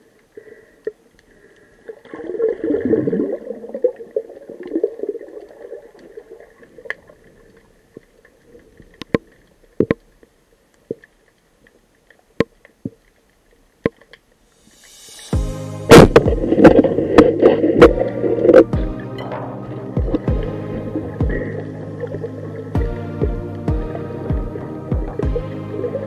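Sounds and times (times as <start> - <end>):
underwater bubbling: 0.0 - 13.6, 15.4 - 26.0
sharp clicks underwater: 8.9 - 14.3
music: 14.6 - 26.0.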